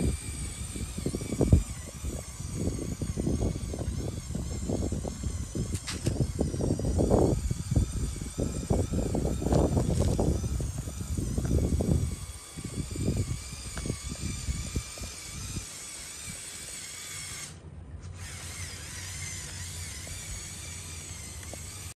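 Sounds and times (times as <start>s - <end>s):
toy truck motor whining: 0.0s - 22.0s
tyres crackling over gravel: 8.0s - 16.8s.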